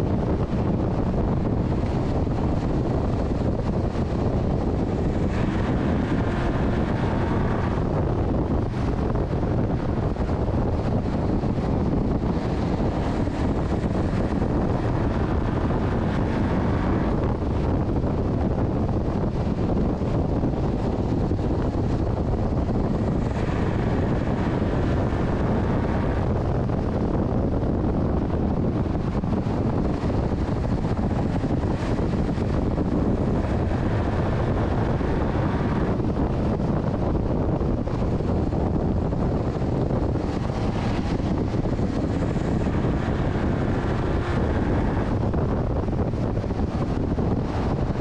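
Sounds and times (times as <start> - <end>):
truck engine running hard: 0.0 - 48.0
wind buffeting microphone: 0.0 - 48.0.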